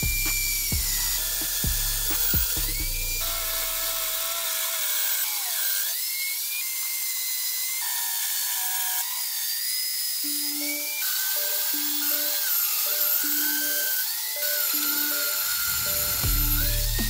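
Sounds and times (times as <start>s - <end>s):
drill cutting through steel: 0.0s - 17.0s
background music: 10.3s - 17.0s.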